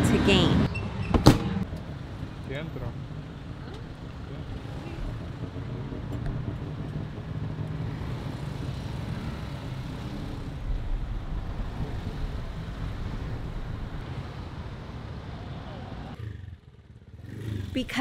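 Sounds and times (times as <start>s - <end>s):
road traffic: 0.0s - 18.0s
motor scooter engine: 1.6s - 10.9s.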